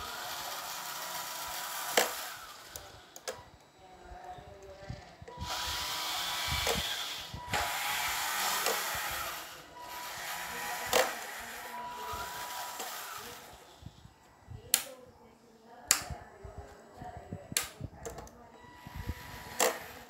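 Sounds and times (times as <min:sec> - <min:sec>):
small gear motors whirring: 0:00.0 - 0:14.2, 0:18.6 - 0:20.0
sharp clicks: 0:15.9 - 0:16.2.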